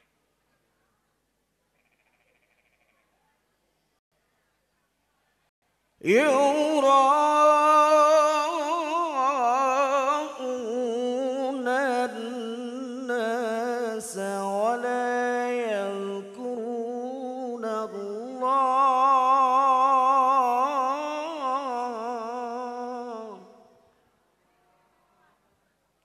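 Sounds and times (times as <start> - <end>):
man chanting into a microphone: 6.0 - 23.7.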